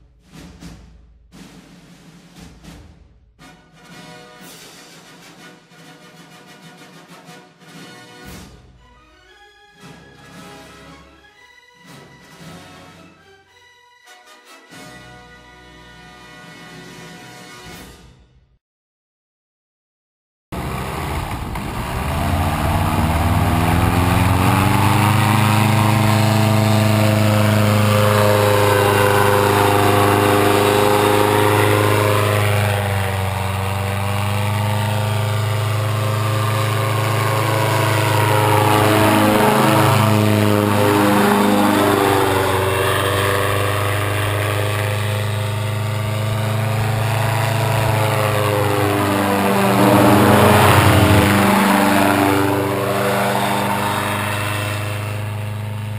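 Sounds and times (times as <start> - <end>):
paramotor engine droning: 20.6 - 55.9.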